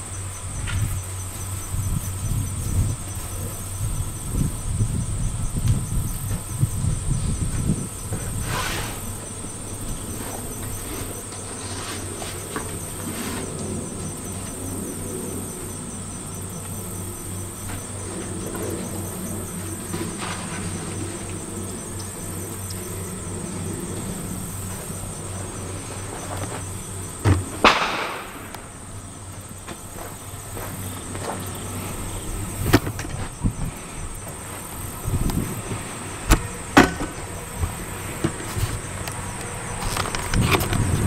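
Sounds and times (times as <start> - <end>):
sharp knocks: 36.3 - 37.2.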